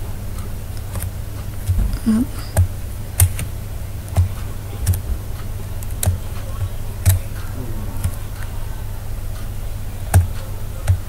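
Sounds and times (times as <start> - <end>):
low electrical hum: 0.0 - 11.0
computer mouse clicking: 0.8 - 1.8, 2.5 - 3.5, 4.1 - 5.0, 5.8 - 6.4.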